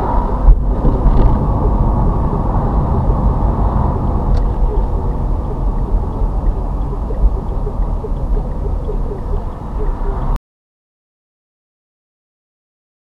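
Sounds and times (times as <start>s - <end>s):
car engine and road rumble: 0.0s - 10.4s.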